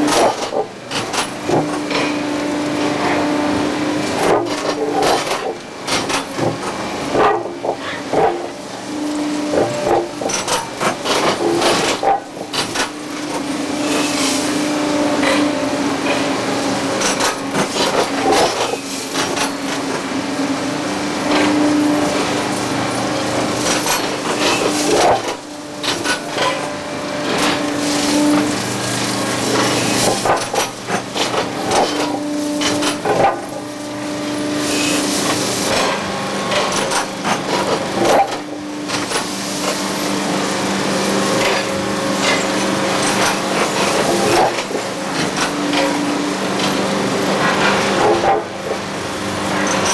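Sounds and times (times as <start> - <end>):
machine mechanical hum: 0.0 - 49.9
clanks and knocks of steel: 4.2 - 8.5, 9.6 - 13.0, 23.6 - 28.6, 29.5 - 33.6.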